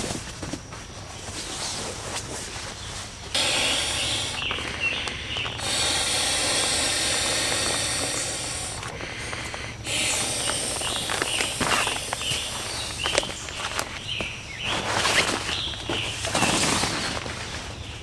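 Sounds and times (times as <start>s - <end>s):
breath blown into inflatable pad: 3.4s - 13.2s.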